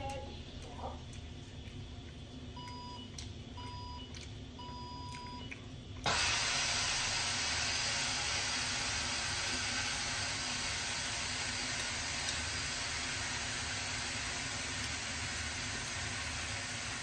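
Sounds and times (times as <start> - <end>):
electronic appliance beeps: 2.6 - 5.6.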